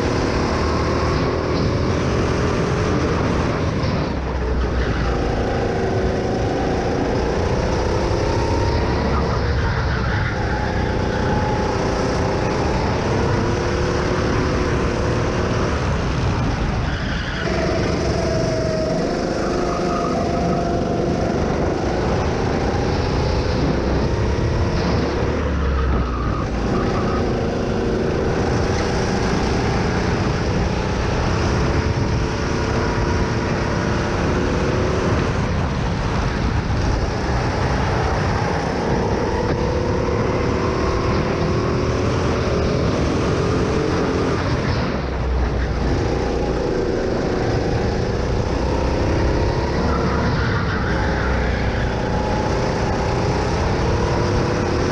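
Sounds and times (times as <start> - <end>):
go-kart engine accelerating: 0.0 - 54.9
wind and tyres rushing: 0.0 - 54.9.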